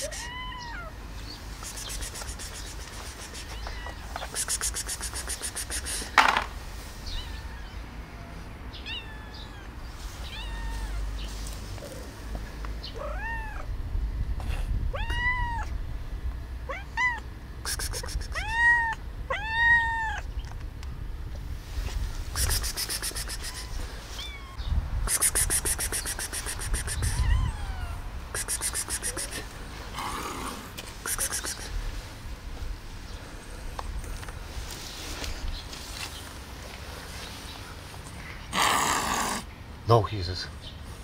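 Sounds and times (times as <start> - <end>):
cat hissing: 0.0 - 0.9, 1.5 - 6.4, 16.7 - 20.3, 22.2 - 31.9, 38.5 - 39.5
cat meowing: 0.0 - 0.9, 3.4 - 4.3, 7.1 - 11.2, 12.9 - 13.7, 14.9 - 15.8, 16.7 - 17.3, 18.2 - 20.3, 23.3 - 24.7, 26.7 - 28.1.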